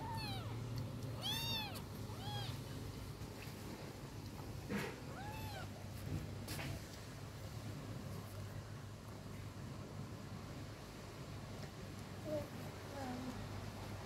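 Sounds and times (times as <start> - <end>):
cat mewing: 0.0 - 0.6, 1.2 - 2.6, 4.7 - 5.7.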